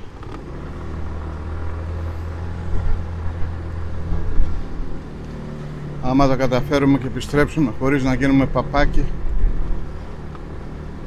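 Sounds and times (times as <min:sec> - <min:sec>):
motorcycle engine hum: 0:00.0 - 0:11.0
road noise on wet asphalt: 0:00.0 - 0:11.0.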